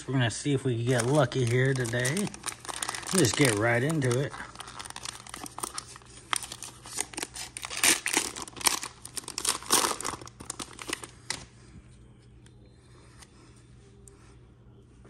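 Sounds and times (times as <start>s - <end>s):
plastic wrapper tearing and crinkling: 0.8s - 11.5s.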